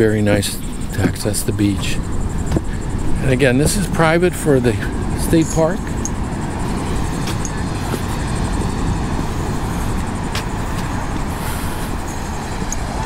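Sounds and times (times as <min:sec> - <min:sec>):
wind buffeting microphone: 0:00.0 - 0:13.0
rough ocean surf: 0:01.4 - 0:13.0.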